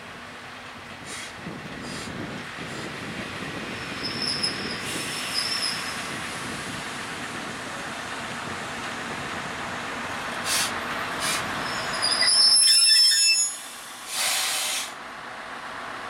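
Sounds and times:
diesel railcar rolling: 0.0s - 16.0s
high wheel squeals: 3.6s - 6.1s, 10.6s - 14.8s.

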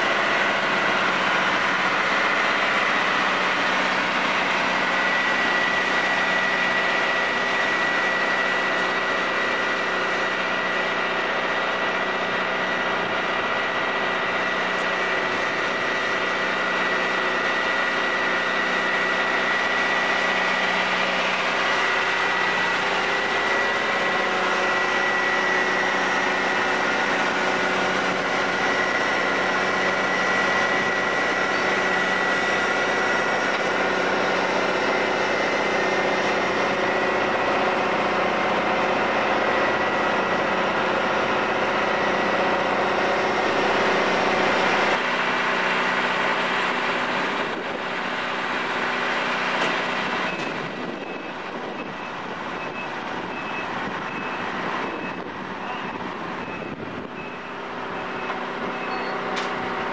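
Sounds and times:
engine idling: 0.0s - 59.9s.

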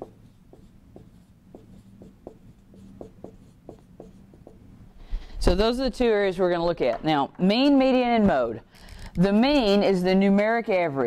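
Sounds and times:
marker writing on whiteboard: 0.0s - 4.7s.

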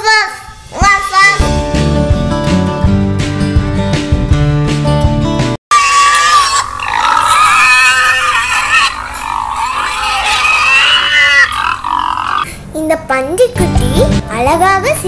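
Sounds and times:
guitar music: 1.4s - 5.6s, 13.6s - 15.0s
pig squealing: 5.7s - 12.5s.

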